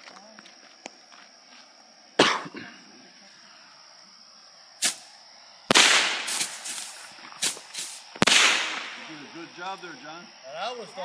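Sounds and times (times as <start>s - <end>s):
firecrackers banging and popping: 4.8s - 5.1s, 5.7s - 9.5s.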